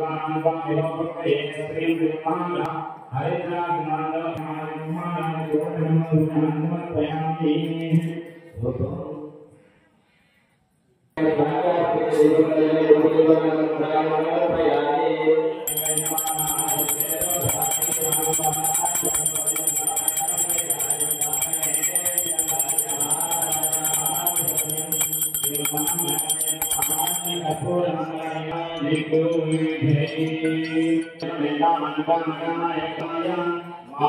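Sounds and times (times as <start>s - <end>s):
mantra chanting: 0.0s - 9.5s, 11.2s - 24.8s, 27.5s - 34.0s
hand bell rung rapidly: 15.7s - 27.9s.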